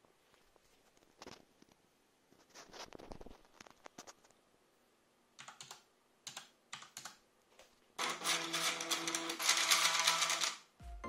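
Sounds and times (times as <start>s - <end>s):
keyboard keystrokes: 5.4s - 7.2s, 8.0s - 10.6s.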